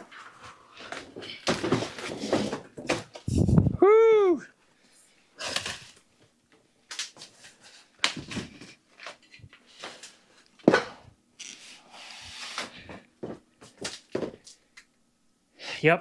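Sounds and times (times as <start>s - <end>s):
cardboard scraping and rustling: 0.0s - 3.6s.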